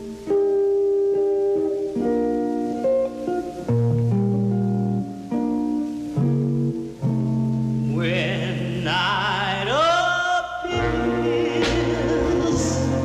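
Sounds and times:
vocal group singing: 0:09.6 - 0:13.0
low bass notes: 0:10.7 - 0:13.0.

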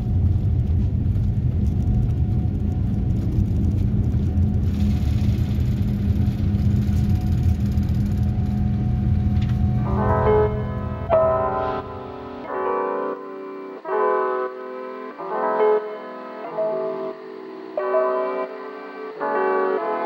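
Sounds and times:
wheels rolling on runway: 0:00.0 - 0:10.6
jet engines rumbling: 0:00.0 - 0:13.8
piano music: 0:08.8 - 0:20.0.

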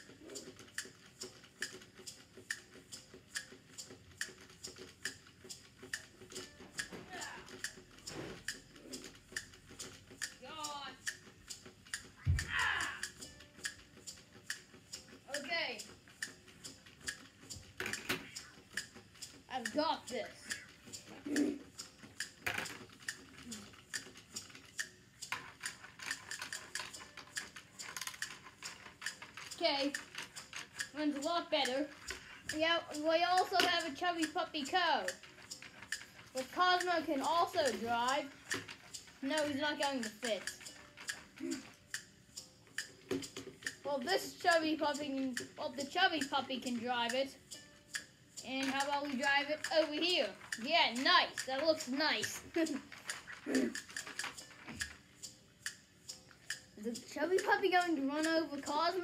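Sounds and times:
faint steady ticking: 0:00.0 - 0:59.0
toy gear mechanism clicking: 0:00.0 - 0:59.0
plastic clatter: 0:22.4 - 0:23.5, 0:43.1 - 0:43.8.

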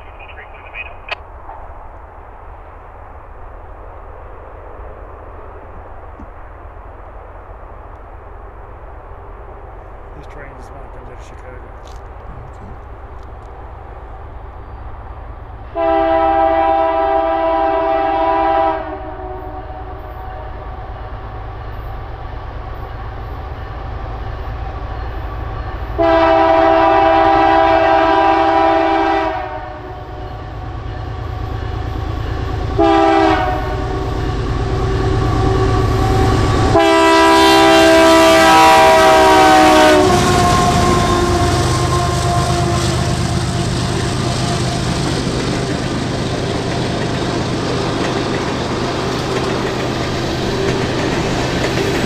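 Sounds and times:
diesel locomotive rumble: 0:00.0 - 0:52.0
train wheel noise: 0:00.0 - 0:52.0
train horn blasts: 0:15.7 - 0:21.2, 0:25.1 - 0:45.2.

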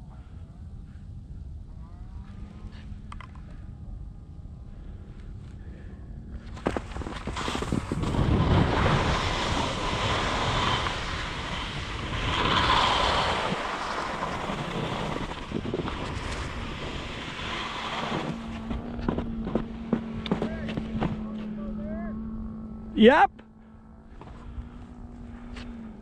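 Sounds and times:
wind rushing over microphone: 0:03.6 - 0:21.3
skis scraping over snow: 0:06.5 - 0:21.6.

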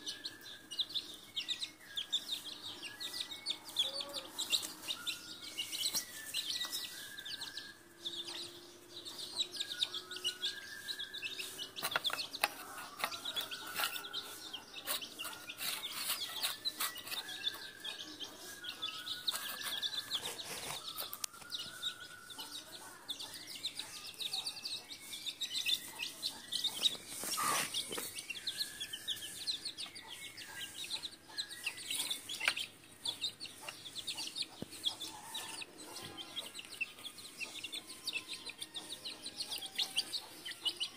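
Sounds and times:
beaks pecking on tiled floor: 0:00.0 - 0:40.9
chicks peeping: 0:00.0 - 0:40.9
hen clucking: 0:25.8 - 0:28.0.

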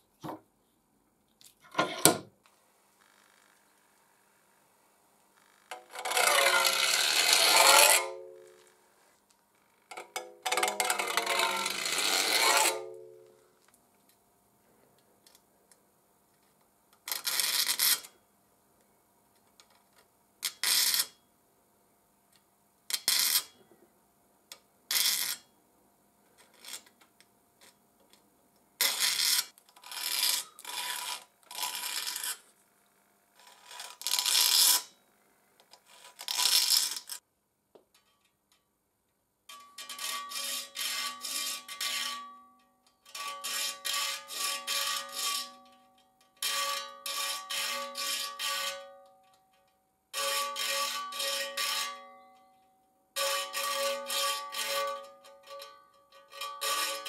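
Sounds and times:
file rasping on saw teeth: 0:05.7 - 0:08.1, 0:10.6 - 0:12.8, 0:28.8 - 0:32.4, 0:39.8 - 0:42.2, 0:43.1 - 0:45.6, 0:46.4 - 0:48.8, 0:56.3 - 0:57.0.

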